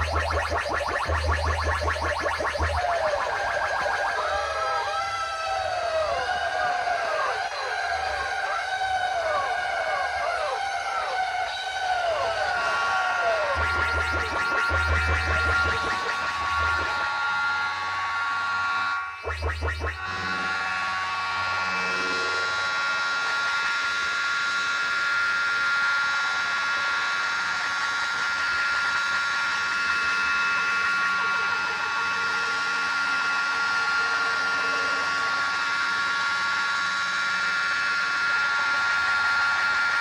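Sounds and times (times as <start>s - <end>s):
high electronic tones: 0.0s - 4.8s, 13.5s - 17.4s, 19.1s - 20.7s
noisy crowd din: 0.0s - 25.0s, 26.1s - 39.9s.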